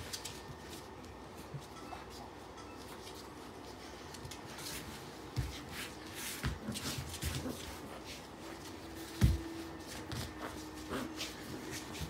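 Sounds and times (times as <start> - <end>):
dogs scuffling on tiles: 0.0 - 12.0.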